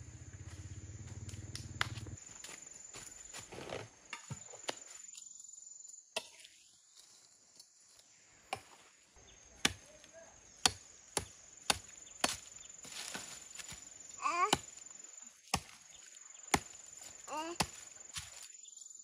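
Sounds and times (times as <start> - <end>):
insect trill: 0.0 - 19.0
chopping wood: 1.5 - 2.1, 9.6 - 9.9, 10.6 - 14.8, 15.4 - 15.8, 16.5 - 16.8, 17.4 - 18.4.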